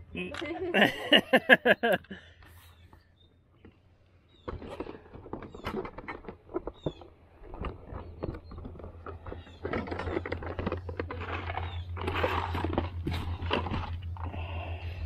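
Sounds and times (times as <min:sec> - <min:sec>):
steady low hum: 0:07.2 - 0:15.0.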